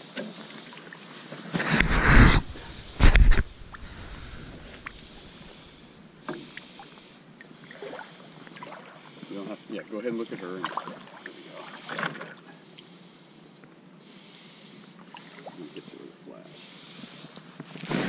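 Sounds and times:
water sloshing and lapping: 0:00.0 - 0:01.8, 0:02.4 - 0:09.4, 0:10.2 - 0:12.9, 0:15.0 - 0:15.8.

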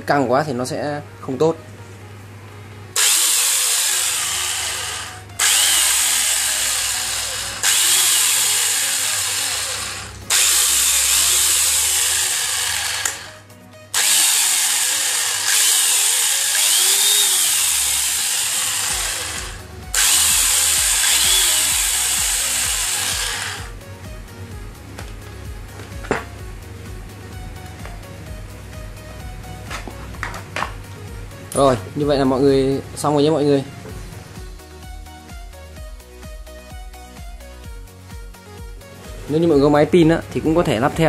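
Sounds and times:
electric chainsaw attachment running: 0:03.0 - 0:23.8.

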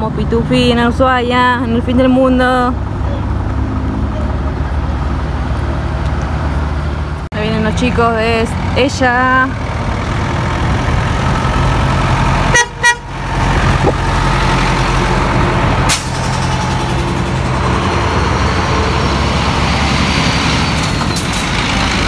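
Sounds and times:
car engine and road noise: 0:00.0 - 0:22.0
car horn toots: 0:12.5 - 0:13.2.

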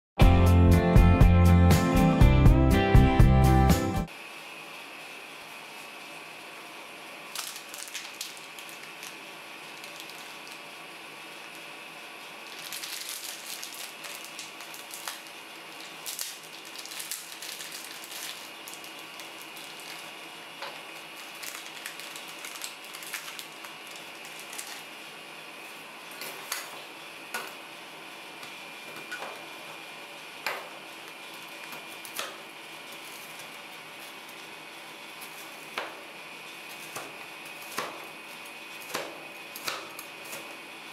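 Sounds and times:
plastic wrapper crinkling: 0:07.3 - 0:10.8, 0:12.4 - 0:24.9.

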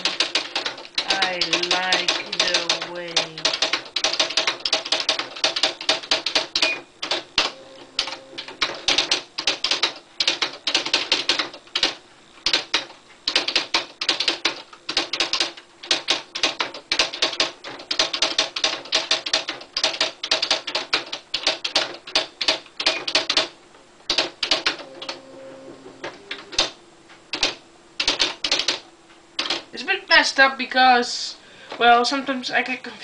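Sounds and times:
short steady hum: 0:05.3 - 0:10.3, 0:23.6 - 0:29.8.

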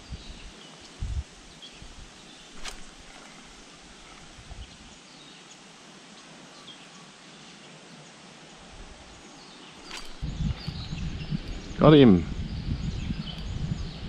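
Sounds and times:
faint steady hiss: 0:00.0 - 0:14.0
soft low bumps: 0:01.8 - 0:04.9
faint bird chirps: 0:09.1 - 0:14.0.

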